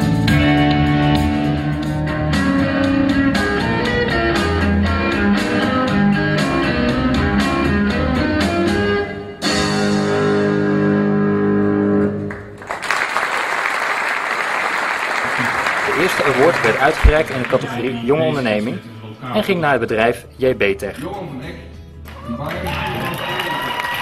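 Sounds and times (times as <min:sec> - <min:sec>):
guitar-led music with beat: 0:00.0 - 0:10.5
audience applause: 0:12.3 - 0:17.8, 0:22.1 - 0:24.0.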